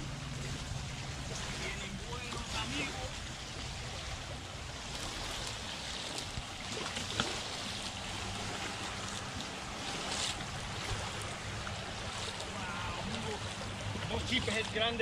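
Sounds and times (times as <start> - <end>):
water lapping on shoreline: 0.0 - 15.0
water splashes: 0.0 - 15.0.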